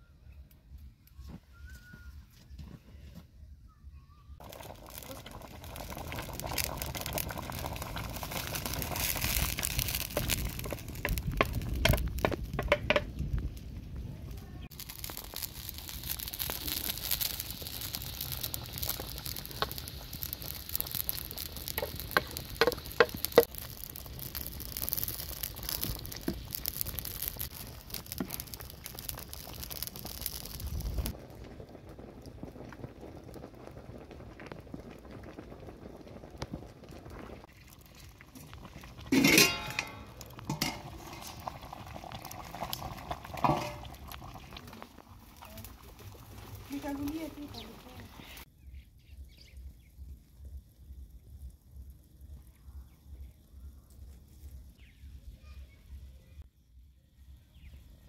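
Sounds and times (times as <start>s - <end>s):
stew sizzling in a metal pan: 4.4s - 13.1s, 14.6s - 31.2s, 36.9s - 48.5s.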